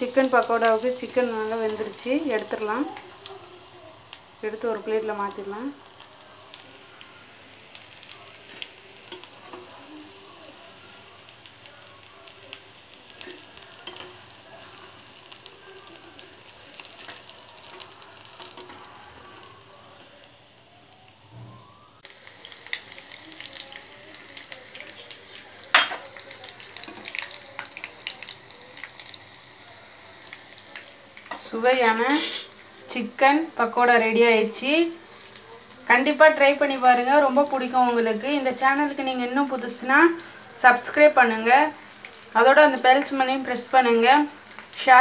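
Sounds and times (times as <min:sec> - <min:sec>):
food deep-frying in hot oil: 0:00.0 - 0:45.0.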